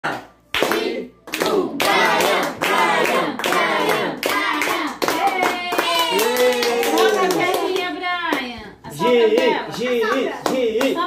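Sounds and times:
group of people singing: 0.0s - 5.0s
hands clapping in a steady beat: 0.0s - 8.5s, 9.3s - 11.0s.

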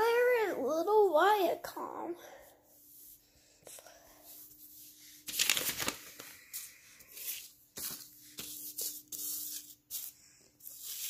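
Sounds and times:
paper rustling on tile floor: 4.2s - 11.0s.

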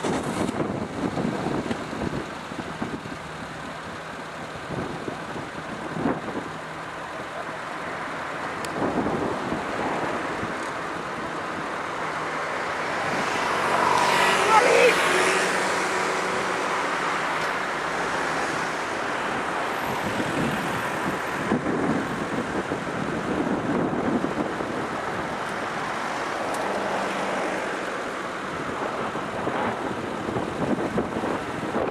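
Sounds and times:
wind buffeting the microphone: 0.0s - 3.6s, 8.5s - 11.9s, 17.5s - 26.9s, 28.2s - 31.9s
road traffic: 0.0s - 31.9s.

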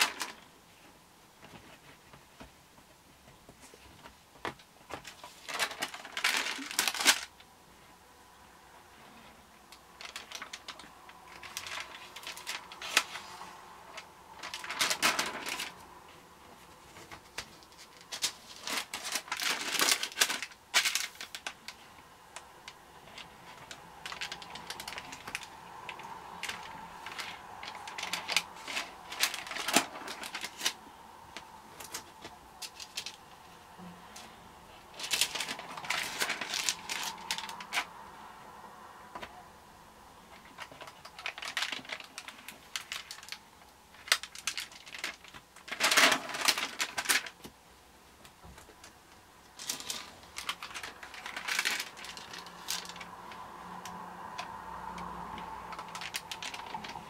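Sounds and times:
stiff pages rustling: 0.0s - 7.4s, 9.1s - 33.6s, 34.2s - 38.0s, 40.3s - 47.6s, 49.5s - 57.0s
pages clicking: 4.0s - 7.3s, 9.7s - 15.8s, 16.9s - 33.2s, 34.9s - 37.9s, 49.5s - 57.0s.

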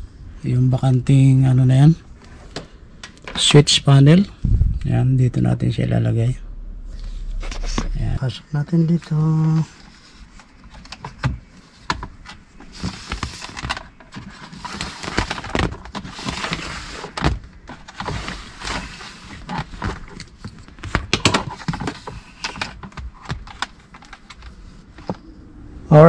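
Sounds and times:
plastic parts clicking and knocking: 10.4s - 25.2s.

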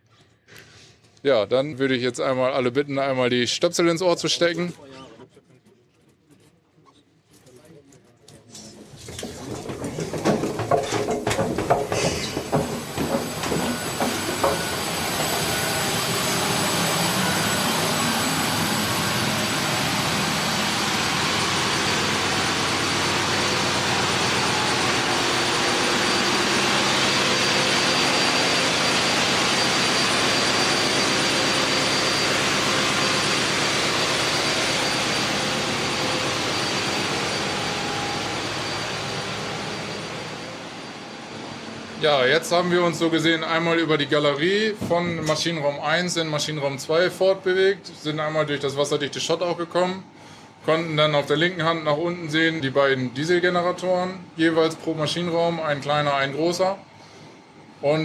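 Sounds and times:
knocks and clatters: 8.5s - 15.6s
constant high whine: 8.6s - 58.0s
diesel generators running: 8.7s - 58.0s.

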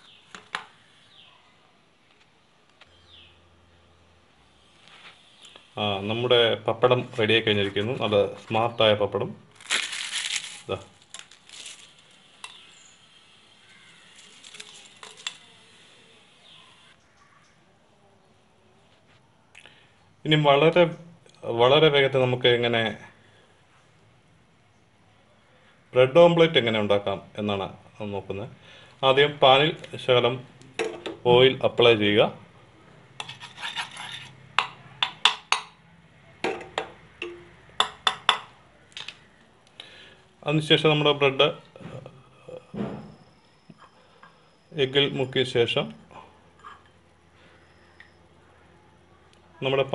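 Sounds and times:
pappadam crumbling: 6.8s - 13.0s, 13.6s - 16.0s
spoon scraping frying pan: 33.2s - 34.8s, 46.6s - 47.0s
spoon clicking and tapping on pan: 34.6s - 35.8s, 36.5s - 38.5s.

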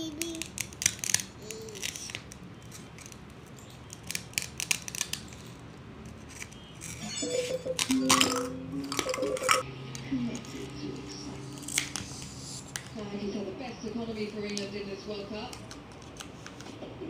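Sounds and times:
child's voice: 0.0s - 0.6s, 1.4s - 2.2s
toy knife clicking and scraping: 0.0s - 7.1s.

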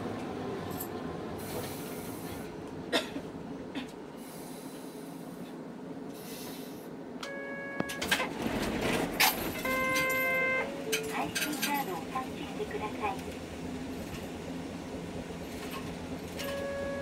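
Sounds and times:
streetcar interior rumble: 0.0s - 17.0s
electronic buzzer tone: 7.2s - 8.0s, 9.6s - 10.7s.

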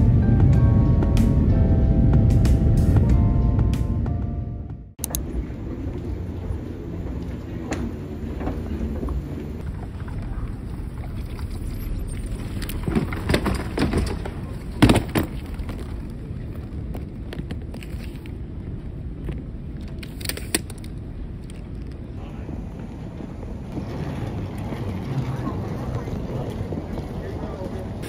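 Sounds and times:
low rumble of hall: 0.0s - 28.0s
suitcase clunking: 12.2s - 16.1s.

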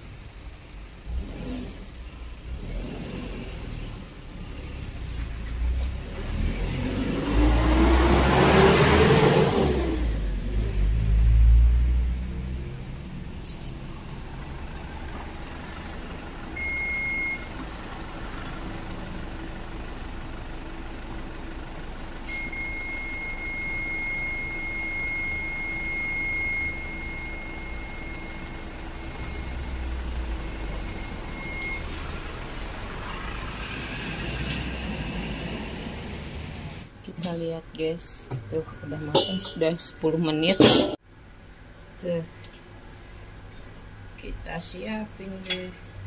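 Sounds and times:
large vehicle engine rumbling: 0.0s - 46.0s
high-pitched beep: 16.6s - 17.5s, 22.3s - 29.7s, 30.5s - 32.0s.

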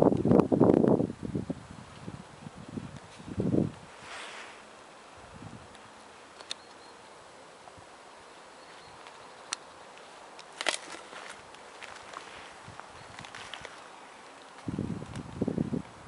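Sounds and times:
low steady hiss: 0.0s - 16.0s.

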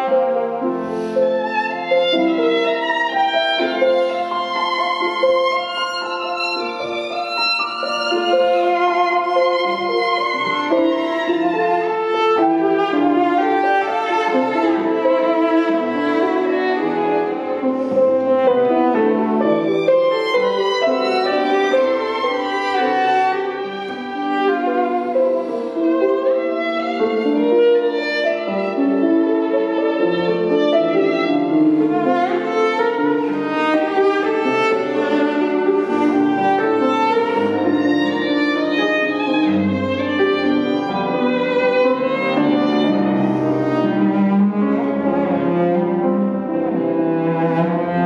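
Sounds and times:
cello: 0.0s - 48.0s
grand piano: 0.0s - 48.0s
violin: 0.0s - 48.0s.

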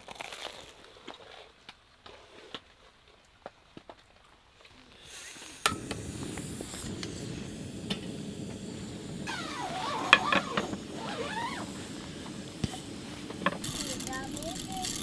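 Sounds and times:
gas stove burner rushing: 5.1s - 15.0s.

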